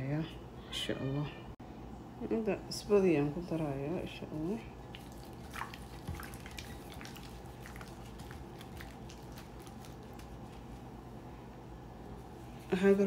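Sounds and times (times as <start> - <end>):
low room hum: 0.0 - 13.0
wet squishing of raw chicken: 4.8 - 10.9.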